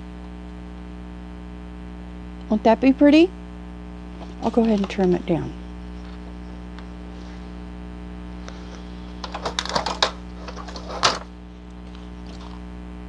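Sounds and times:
low mains hum: 0:00.0 - 0:13.0
paper crackle: 0:04.1 - 0:07.6, 0:08.4 - 0:12.6
paper clicks and rustles: 0:04.2 - 0:05.3, 0:05.9 - 0:07.4, 0:08.4 - 0:12.6.

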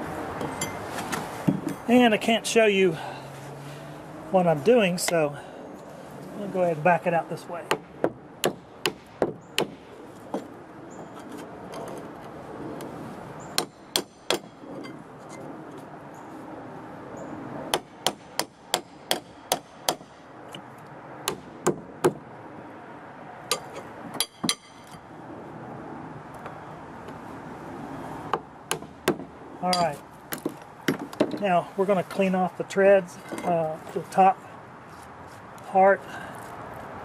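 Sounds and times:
short metallic ring: 0:00.5 - 0:00.8
hammer striking a nail: 0:07.7 - 0:09.8, 0:13.6 - 0:14.5, 0:17.7 - 0:20.1, 0:21.2 - 0:22.2, 0:23.5 - 0:24.9.

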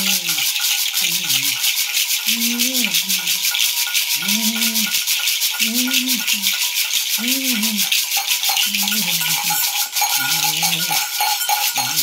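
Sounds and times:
low voice chanting: 0:00.0 - 0:01.6, 0:02.3 - 0:03.4, 0:04.2 - 0:05.0, 0:05.6 - 0:06.6, 0:07.2 - 0:08.0, 0:08.6 - 0:12.0
gourd rattles shaken: 0:00.0 - 0:12.0
small metal bells jingling: 0:00.0 - 0:12.0.

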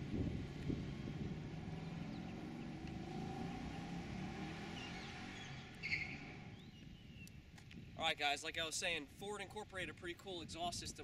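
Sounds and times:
bird chirping: 0:01.7 - 0:04.0, 0:04.6 - 0:07.4.

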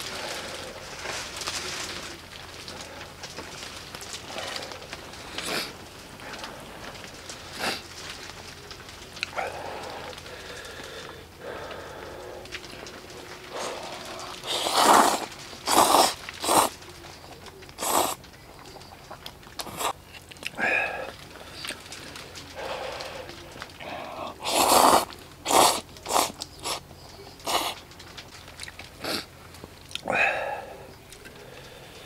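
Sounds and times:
wet chewing: 0:00.0 - 0:32.0
person slurping noodles: 0:13.5 - 0:16.7, 0:17.8 - 0:18.2, 0:19.6 - 0:20.0, 0:23.9 - 0:26.8, 0:27.4 - 0:27.8, 0:29.0 - 0:29.3.

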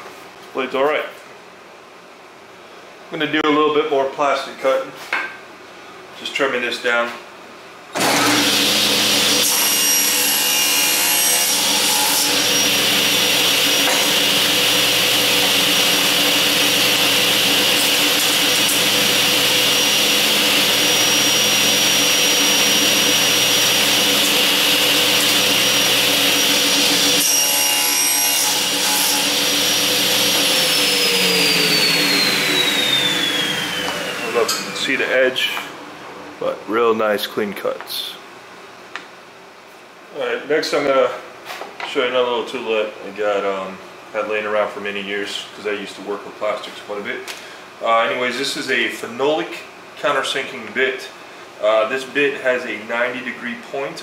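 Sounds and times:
saw cutting plastic sheet: 0:08.0 - 0:34.9
table saw whining: 0:08.0 - 0:35.7.

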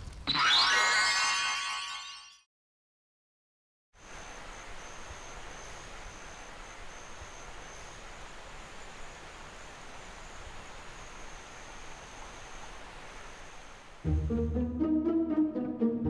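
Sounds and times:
insect trill: 0:04.0 - 0:13.8
steady hiss: 0:04.0 - 0:14.1.

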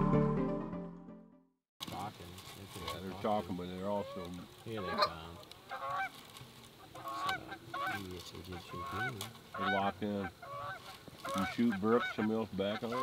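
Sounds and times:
goose honking: 0:03.1 - 0:06.2, 0:06.8 - 0:13.0.

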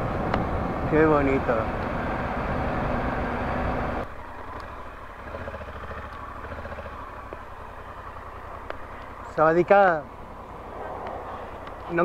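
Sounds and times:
motorcycle engine: 0:00.0 - 0:12.0
wind and road noise: 0:00.0 - 0:12.0.

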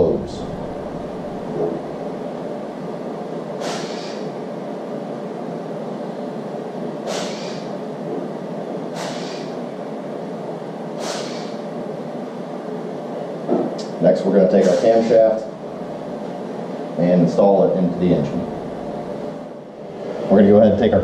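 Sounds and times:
workshop background drone: 0:00.0 - 0:21.0
short hisses: 0:03.6 - 0:04.3, 0:07.0 - 0:07.7, 0:08.9 - 0:09.6, 0:11.0 - 0:11.6.

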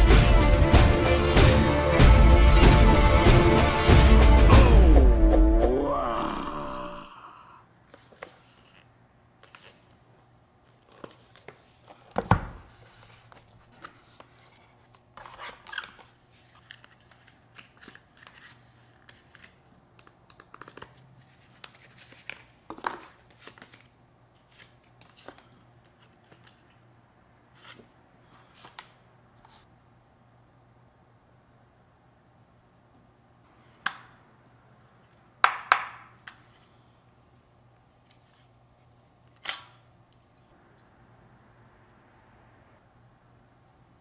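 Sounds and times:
cardboard and paper rustling: 0:07.9 - 0:10.0, 0:10.7 - 0:19.6, 0:20.6 - 0:26.8.

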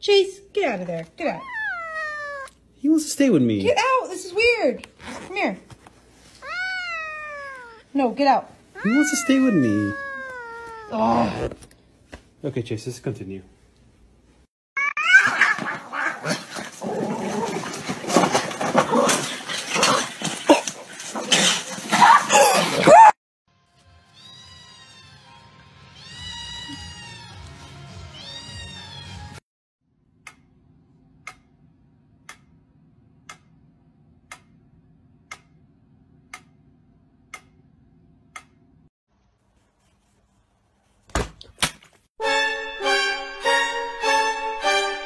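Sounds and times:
metronome ticking: 0:31.2 - 0:31.6, 0:35.3 - 0:35.6, 0:36.3 - 0:36.6.

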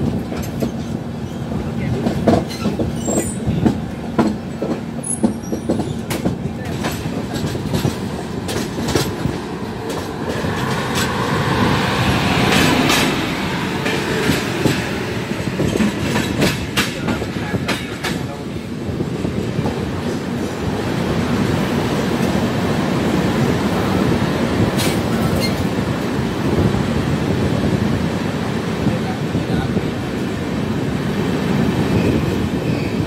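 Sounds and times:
train wheels clattering: 0:00.0 - 0:20.6
passing train: 0:00.0 - 0:33.0.

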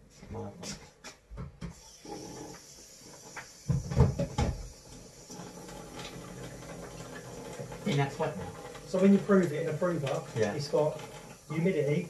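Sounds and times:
kitchen tap running into sink: 0:01.8 - 0:12.0.

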